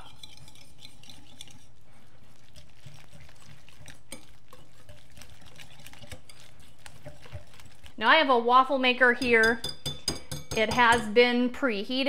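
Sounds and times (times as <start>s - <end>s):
wire whisk scraping glass bowl: 0.0s - 7.9s.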